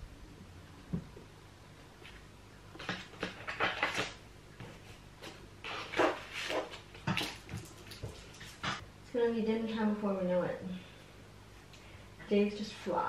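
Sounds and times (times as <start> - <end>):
papers and envelope rustling: 2.8 - 8.8.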